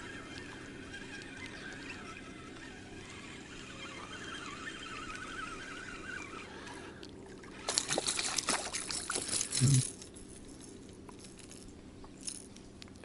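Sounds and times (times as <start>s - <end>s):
spinning reel cranking: 0.0s - 7.0s
wavering high whine: 0.0s - 12.4s.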